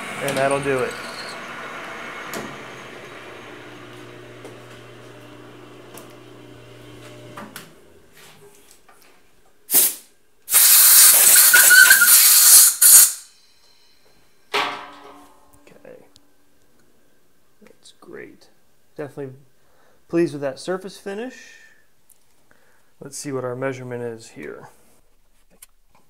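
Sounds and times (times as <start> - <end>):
lathe spindle humming: 0.0 - 7.5
compressed air hiss: 9.7 - 13.2.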